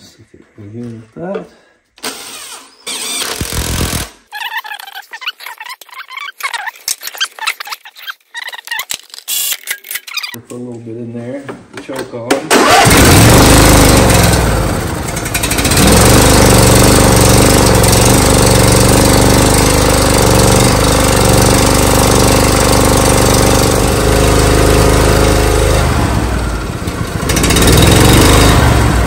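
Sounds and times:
lawn tractor engine running fast: 12.5s - 29.0s.

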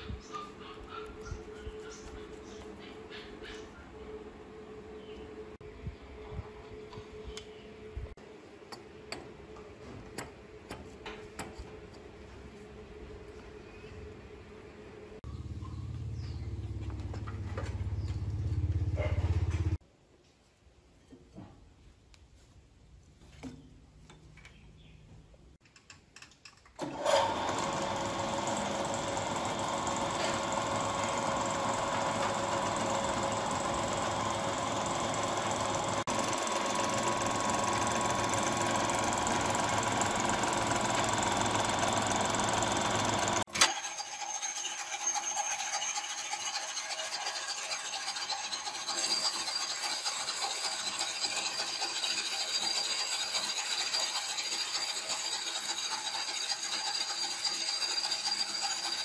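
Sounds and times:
lathe motor whirring and rattling: 26.8s - 59.0s.

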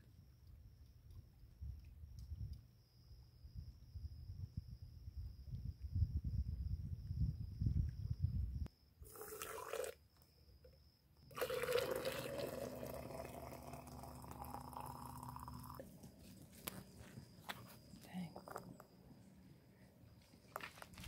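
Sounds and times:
low wind rumble: 3.4s - 8.7s
high insect drone: 6.8s - 19.2s
hot water pouring from saucepan: 9.1s - 10.0s, 11.3s - 15.8s.

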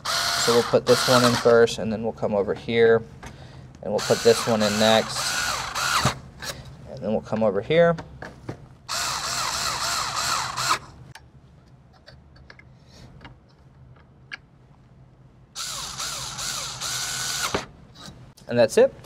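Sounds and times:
electric screwdriver motor whine: 0.0s - 1.4s, 4.1s - 6.2s, 8.9s - 10.9s, 15.6s - 17.6s.

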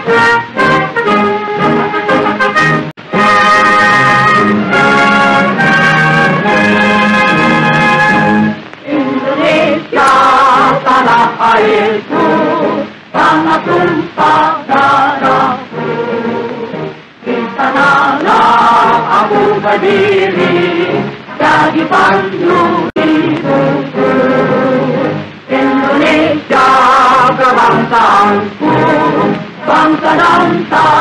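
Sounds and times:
choir singing: 3.1s - 31.0s.

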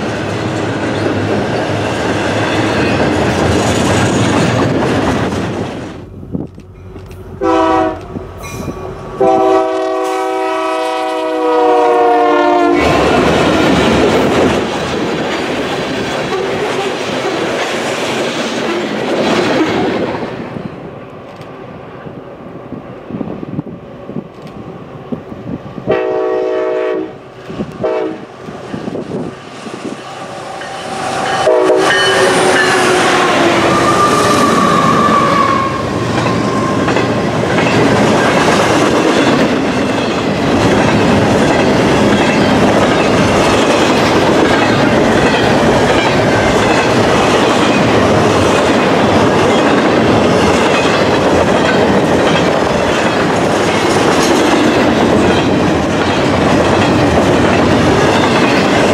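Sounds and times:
train wheel clatter and rumble: 0.0s - 58.9s
locomotive horn blasts: 7.4s - 8.2s, 9.2s - 13.2s, 25.9s - 27.2s, 27.8s - 28.3s, 30.4s - 36.6s.

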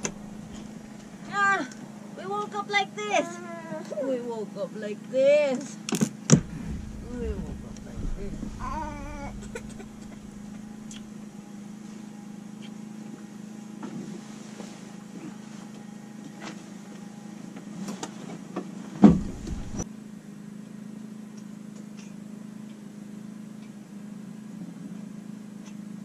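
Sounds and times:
light clicks and knocks: 0.0s - 1.2s, 6.3s - 11.1s
heavy thump: 0.0s - 1.3s, 6.3s - 11.2s, 19.0s - 19.8s
steady low hum: 0.0s - 3.1s, 6.2s - 17.5s, 19.0s - 19.9s.

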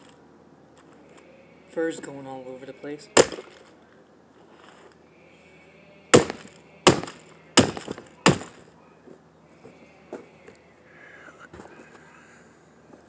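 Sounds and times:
brick slamming onto toy: 3.2s - 3.6s.

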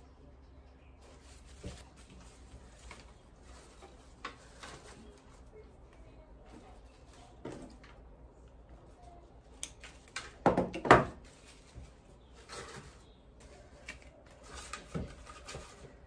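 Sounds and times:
light rustling of silk flowers: 0.8s - 10.4s.

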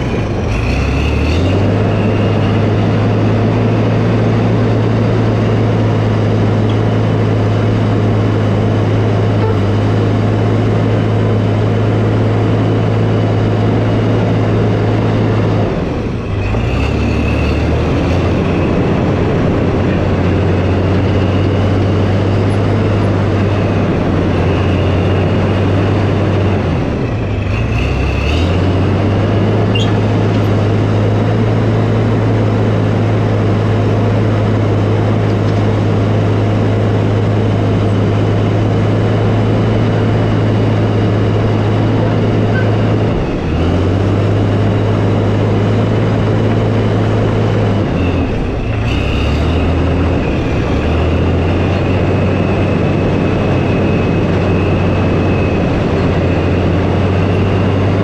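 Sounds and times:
diesel engine running under load: 0.0s - 58.0s.

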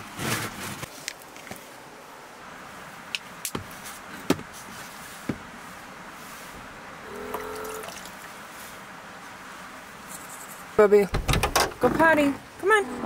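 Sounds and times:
small water pump humming: 7.0s - 8.2s.

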